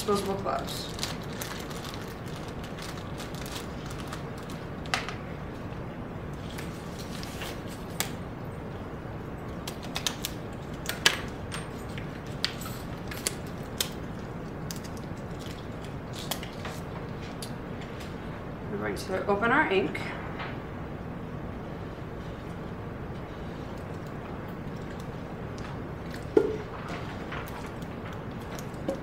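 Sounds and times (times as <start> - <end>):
steady background hiss: 0.0 - 29.0
latex gloves snapping: 13.2 - 16.6.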